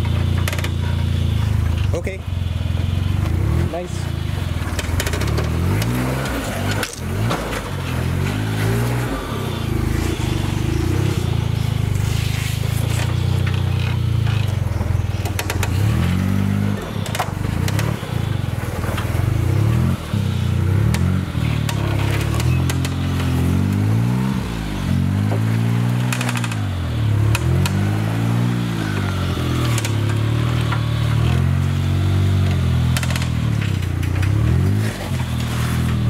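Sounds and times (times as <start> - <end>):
off-road engine revving: 0.0 - 36.0.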